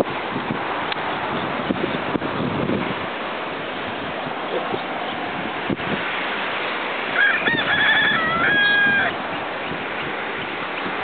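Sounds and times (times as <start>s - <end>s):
steady rushing noise: 0.0s - 11.0s
rooster crowing: 7.1s - 9.3s.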